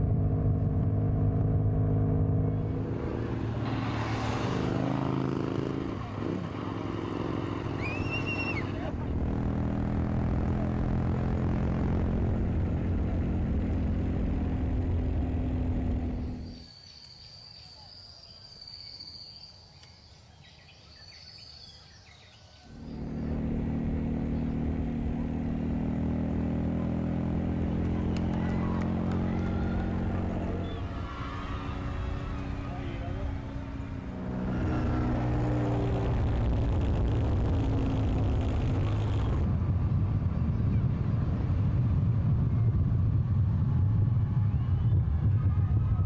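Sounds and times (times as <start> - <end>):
motorcycle engine running: 22.8 - 39.6
wind rush: 35.0 - 46.0.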